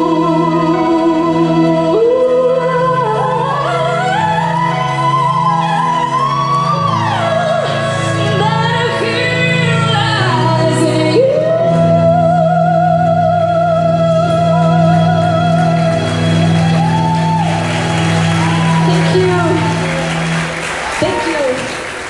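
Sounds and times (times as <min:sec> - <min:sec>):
woman singing with vibrato: 0:00.0 - 0:17.6.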